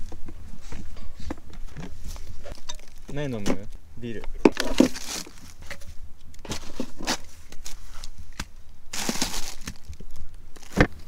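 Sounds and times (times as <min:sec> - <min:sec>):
plastic bag crinkling: 0:04.6 - 0:05.9, 0:06.6 - 0:11.0.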